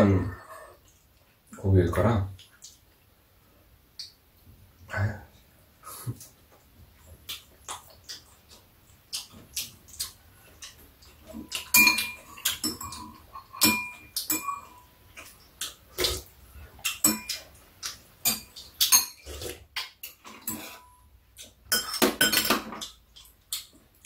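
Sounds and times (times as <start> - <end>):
chewing and lip-smacking: 6.1 - 13.2, 15.1 - 20.0, 22.8 - 24.0
utensils clinking against bowls: 11.1 - 15.3, 16.8 - 21.0, 21.7 - 23.3.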